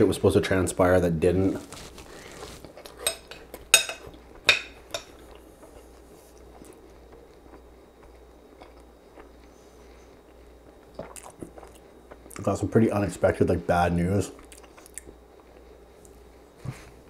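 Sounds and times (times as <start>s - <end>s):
mouth sounds of chewing: 10.2s - 12.5s, 14.3s - 16.9s.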